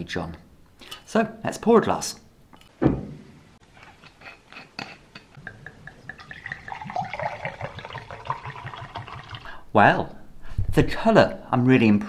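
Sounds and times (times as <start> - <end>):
low thump: 2.8 - 3.3
wine pouring into a glass: 5.4 - 9.6.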